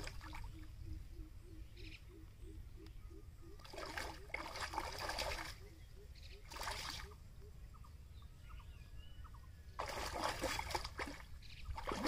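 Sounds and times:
pond water splashing: 0.0 - 0.7, 3.6 - 5.7, 6.4 - 7.2, 9.7 - 12.0
faint bird chirps: 0.1 - 10.1.

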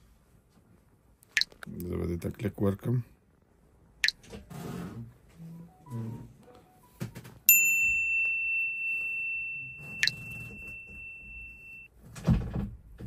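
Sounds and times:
bell-like ding: 7.5 - 11.9.

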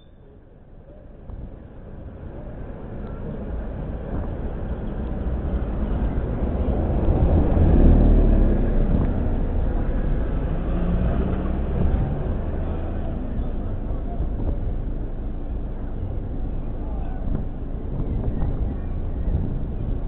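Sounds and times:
car passing by: 5.3 - 14.7.

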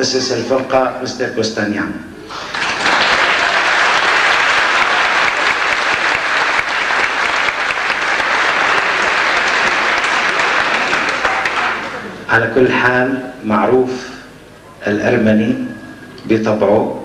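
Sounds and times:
crowd applauding: 2.3 - 12.4.

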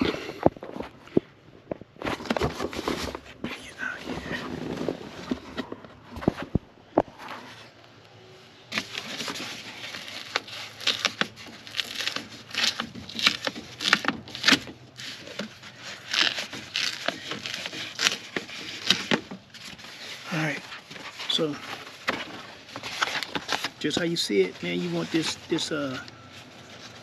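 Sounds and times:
plastic sheet crinkling off adhesive: 8.7 - 27.0.

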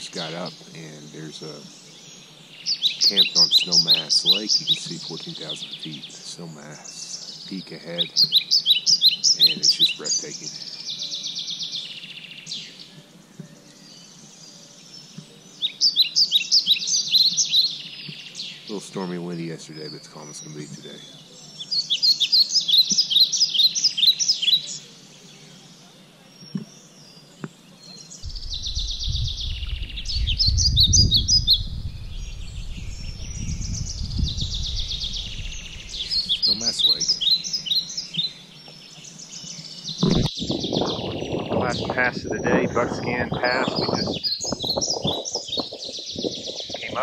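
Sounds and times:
songbird chirping: 0.0 - 47.0
low rumble on microphone: 28.2 - 37.2, 40.0 - 47.0.

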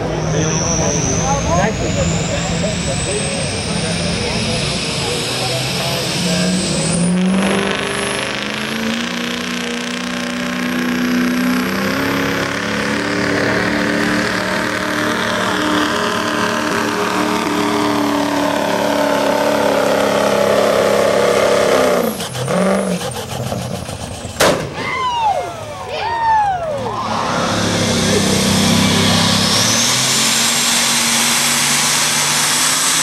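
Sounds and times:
pickup engine running hard: 0.0 - 33.0
sharp crack: 24.3 - 25.0.

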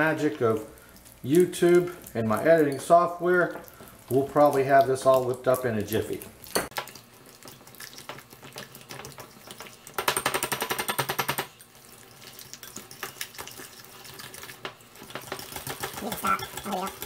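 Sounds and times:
wire whisk beating in glass bowl: 15.2 - 17.0.

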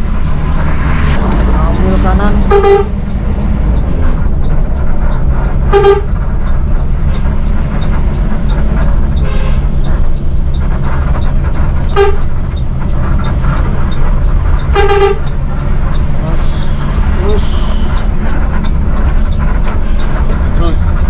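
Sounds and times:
bus diesel engine droning: 0.0 - 21.0
bus horn toots: 2.0 - 3.0, 5.6 - 6.2, 9.2 - 9.8, 11.8 - 12.4, 14.6 - 15.5.

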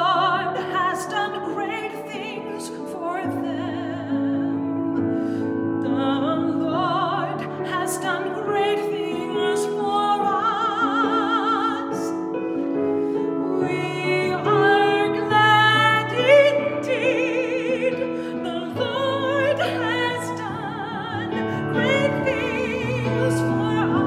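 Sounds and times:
woman singing with vibrato: 0.0 - 5.0, 5.8 - 12.4, 13.2 - 24.0.

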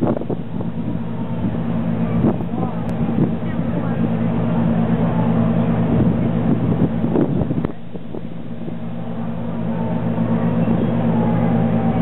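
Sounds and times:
ferry engines humming: 0.0 - 12.0
wind buffeting microphone: 0.0 - 12.0.

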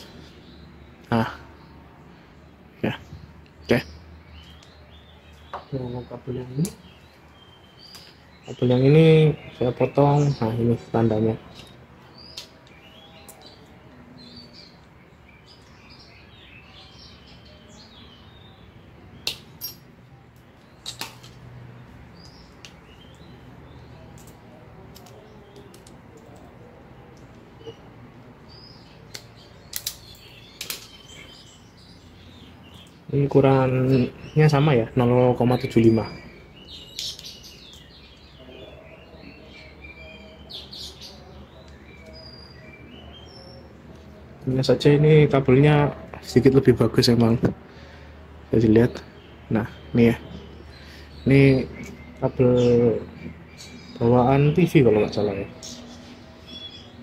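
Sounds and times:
birds chirping: 0.0 - 57.0
pliers snapping through cable: 20.4 - 21.4, 24.1 - 26.5, 29.1 - 31.0.

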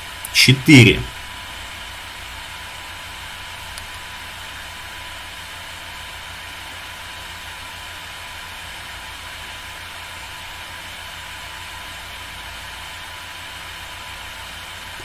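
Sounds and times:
background hiss: 0.0 - 1.2.

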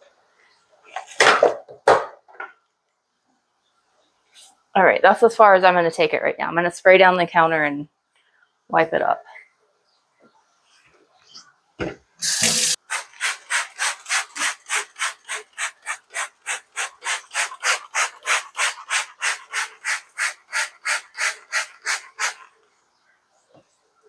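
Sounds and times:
spray bottle squirting: 12.2 - 22.4.

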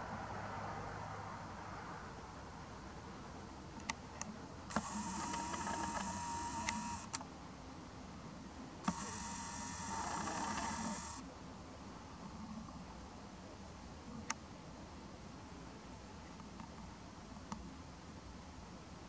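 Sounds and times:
small clicks: 3.8 - 7.3, 8.8 - 11.2
camera lens motor whirring: 4.7 - 7.2, 8.8 - 11.2.

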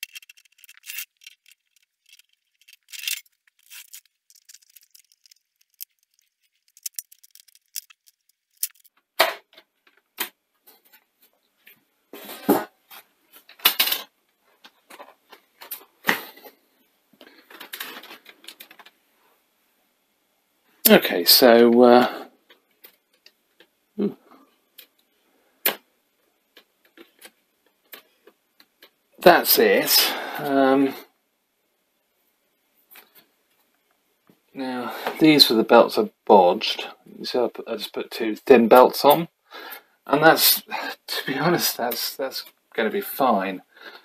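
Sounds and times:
light metallic clicks and rattles: 0.0 - 9.0.

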